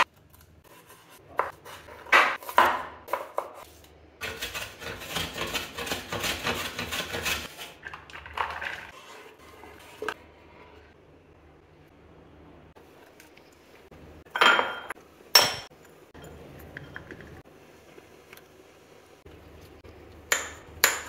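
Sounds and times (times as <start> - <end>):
knife scraping board: 3.2 - 7.8
cheese rasping on metal grater: 4.2 - 7.7.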